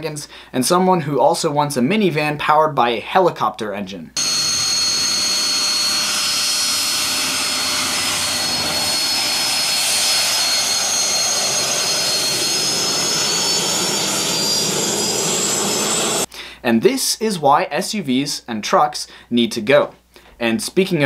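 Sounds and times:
turbine engine roaring and whining: 4.2 - 16.3.

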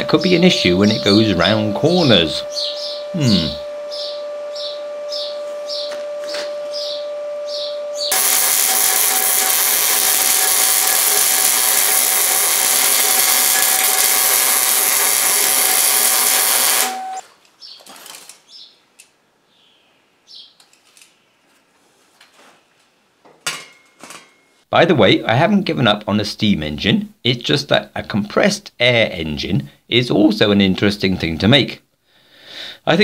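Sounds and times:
arc welder crackling: 8.0 - 18.5.

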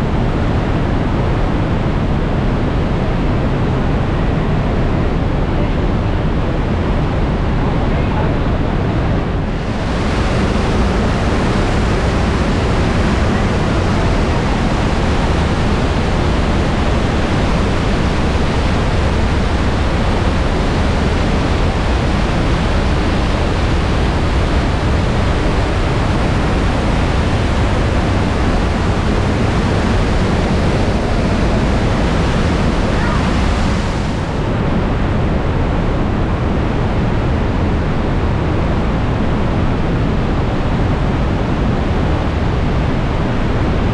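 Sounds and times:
waterfall rushing: 9.5 - 34.5.

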